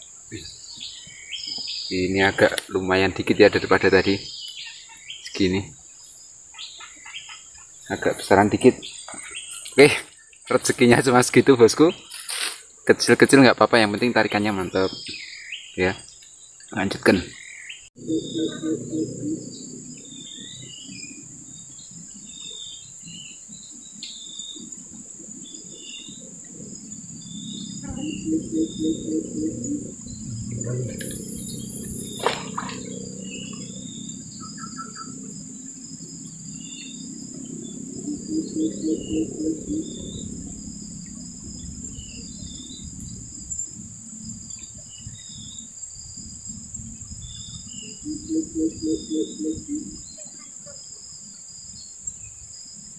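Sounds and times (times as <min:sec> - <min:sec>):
bird chirps: 0:00.0 - 0:12.4, 0:13.8 - 0:52.9
high-pitched insect drone: 0:00.0 - 0:15.0, 0:16.6 - 0:52.9
low rumble: 0:18.0 - 0:22.7, 0:24.2 - 0:45.3
fast pulsing trill: 0:18.0 - 0:50.1.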